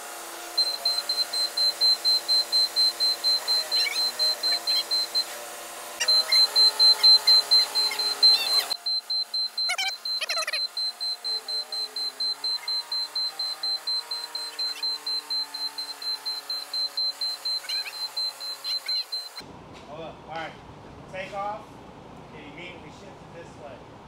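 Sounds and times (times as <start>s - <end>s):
forklift warning beeper: 0.6s - 5.3s, 6.0s - 19.4s.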